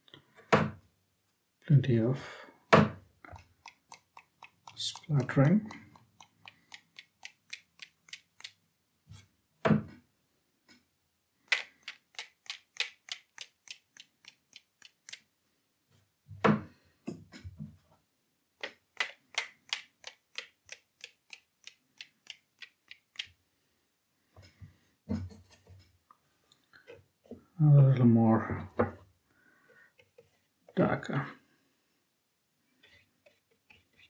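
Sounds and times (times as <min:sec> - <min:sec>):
paintbrush tapping: 0:02.8 - 0:08.6, 0:11.5 - 0:15.2, 0:19.0 - 0:23.4.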